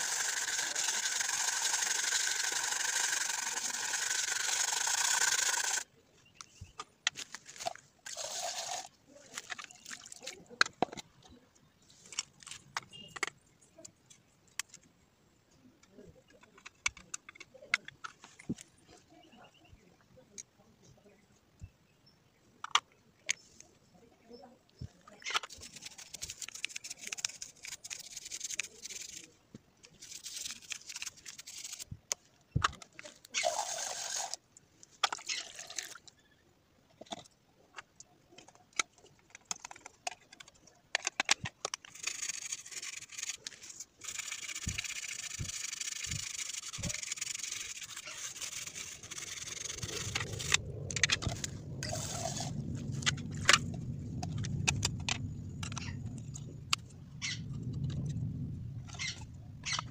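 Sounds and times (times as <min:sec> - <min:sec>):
wet scrubbing on plastic: 0:25.4 - 0:29.3, 0:41.8 - 0:52.6
low rumble: 0:49.4 - 0:59.9.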